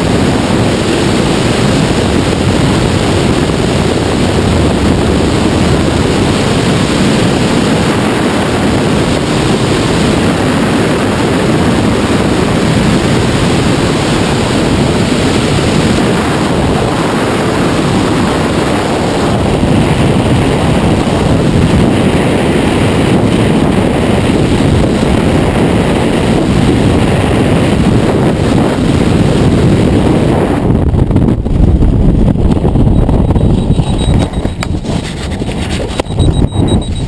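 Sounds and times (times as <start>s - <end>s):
freefall wind buffeting microphone: 0.0s - 37.0s.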